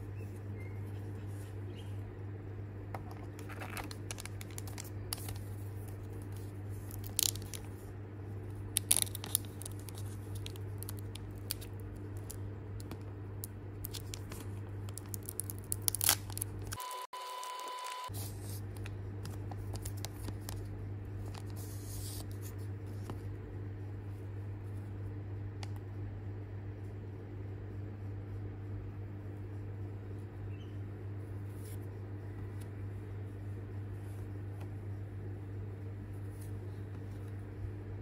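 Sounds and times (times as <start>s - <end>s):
foil wrapper crinkling: 3.4s - 7.8s, 8.6s - 13.0s, 13.8s - 21.6s.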